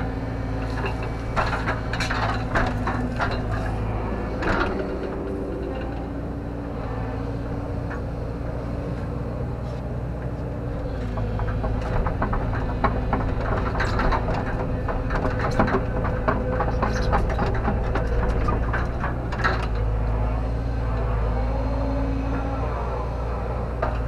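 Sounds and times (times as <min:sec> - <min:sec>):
metallic clanks and knocks: 0:00.0 - 0:06.3, 0:10.2 - 0:20.2
excavator diesel engine running: 0:00.0 - 0:24.0.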